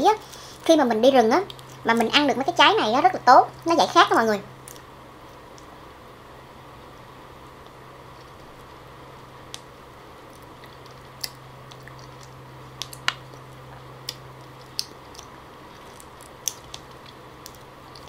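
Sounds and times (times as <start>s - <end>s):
steady low hum: 0.0s - 18.0s
wet eating clicks and squishes: 10.3s - 18.0s.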